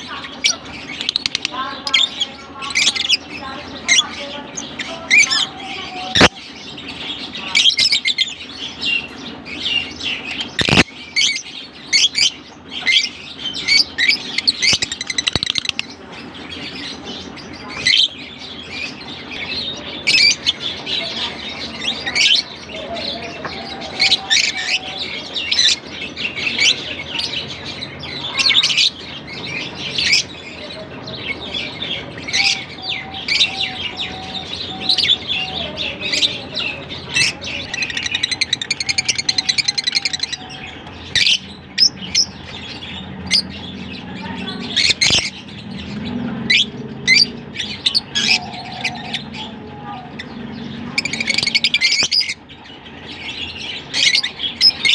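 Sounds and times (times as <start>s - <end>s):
lovebirds chirping: 0.0s - 54.9s.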